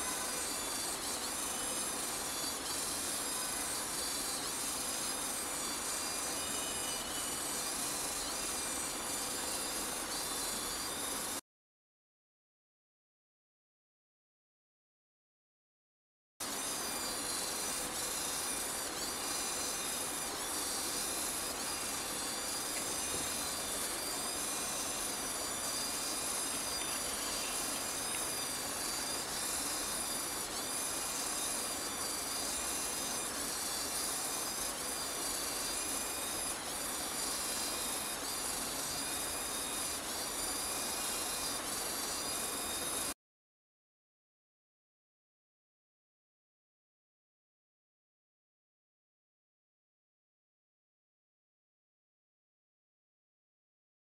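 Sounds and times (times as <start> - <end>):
servo motors whining: 16.6 - 43.1.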